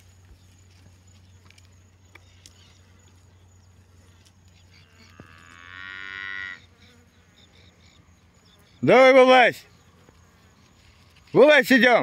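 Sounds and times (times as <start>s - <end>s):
cow mooing: 4.7s - 6.8s.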